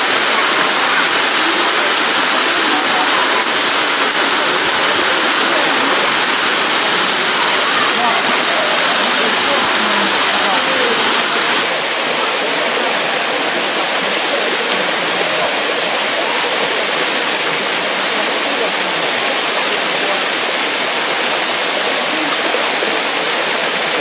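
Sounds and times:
waterfall pouring into pool: 0.0 - 24.0.

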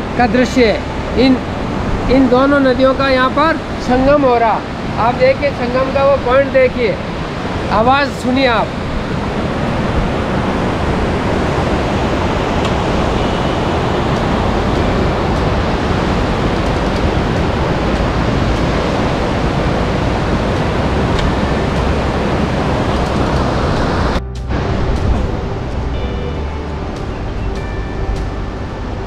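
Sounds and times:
river rushing over boulders: 0.0 - 27.0.

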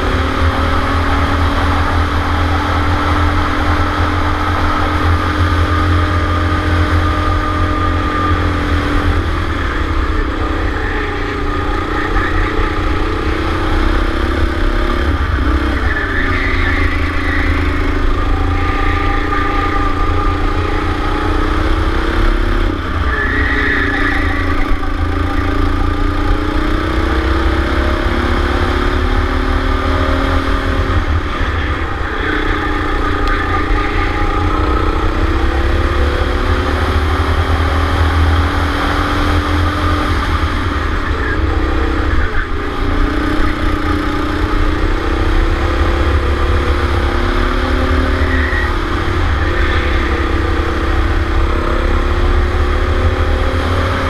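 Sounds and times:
go-kart engine at high revs: 0.0 - 54.0
heavy low rumble: 16.8 - 53.8.

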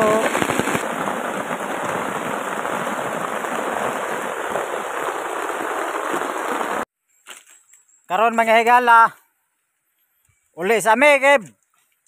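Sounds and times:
heavy rain on a tarp: 0.0 - 6.9.

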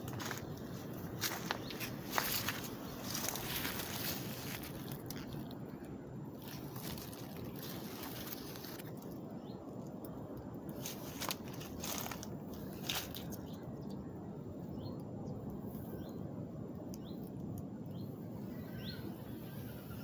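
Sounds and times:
foliage rustling and crackling: 0.0 - 13.8
steady low rumble: 0.0 - 18.6.

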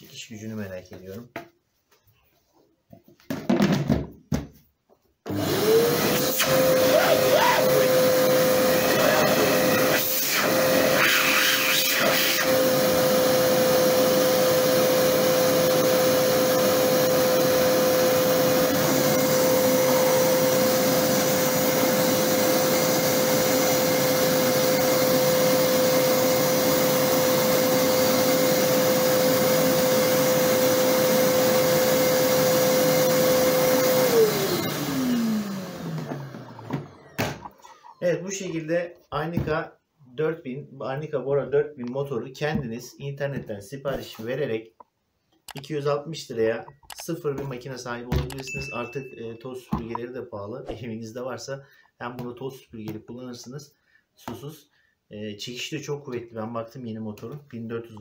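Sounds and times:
vacuum cleaner motor whining: 5.3 - 37.5.

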